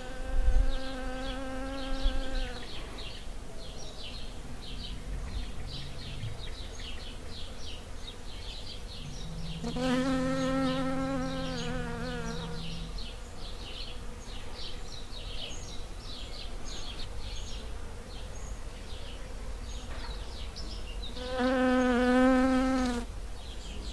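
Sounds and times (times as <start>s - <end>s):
honeybee buzzing: 0.0s - 2.7s, 8.9s - 14.4s, 21.2s - 23.1s.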